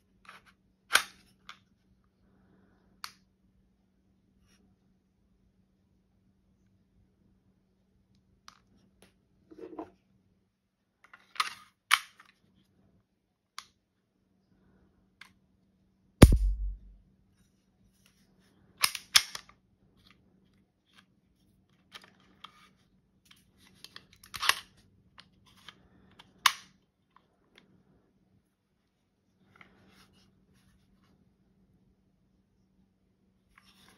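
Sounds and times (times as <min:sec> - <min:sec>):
loud snap and thud: 0:16.2 - 0:17.0.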